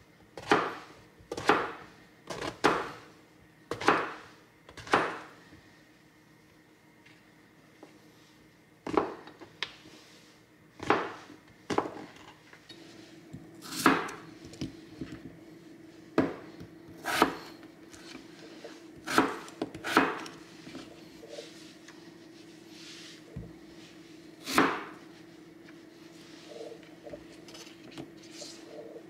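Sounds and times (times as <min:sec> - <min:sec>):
faint steady hum: 0:00.0 - 0:29.0
knife chopping on cutting board: 0:00.4 - 0:03.0, 0:03.7 - 0:05.3, 0:10.8 - 0:12.0, 0:13.6 - 0:14.2, 0:16.2 - 0:17.5, 0:19.0 - 0:20.4, 0:24.4 - 0:25.0.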